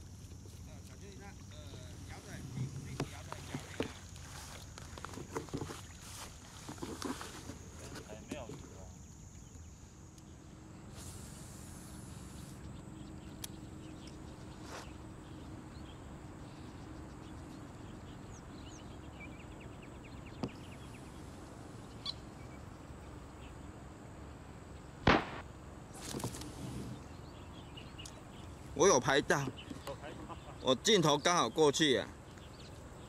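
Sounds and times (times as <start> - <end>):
faint bird chirps: 11.8 - 23.7
sharp loud knock: 25.1 - 25.4.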